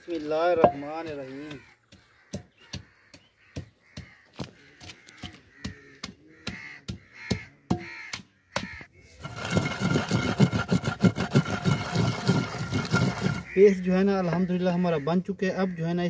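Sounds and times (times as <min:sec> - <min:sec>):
crows cawing: 0:00.4 - 0:09.2, 0:13.0 - 0:16.0
pestle pounding in a mortar: 0:01.8 - 0:04.2, 0:05.2 - 0:13.5.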